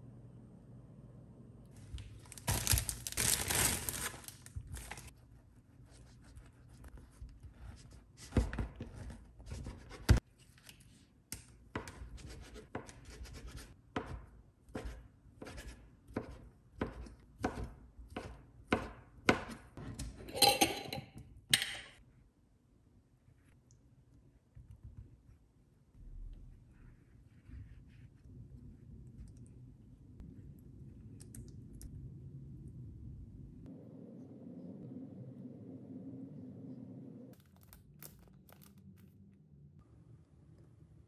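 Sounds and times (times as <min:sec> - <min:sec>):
knife chopping on cutting board: 0:13.9 - 0:20.0.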